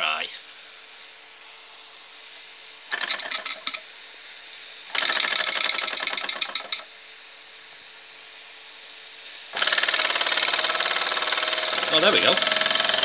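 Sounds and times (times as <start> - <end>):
steam engine cylinder chuffing: 4.8 - 6.9, 9.4 - 13.0.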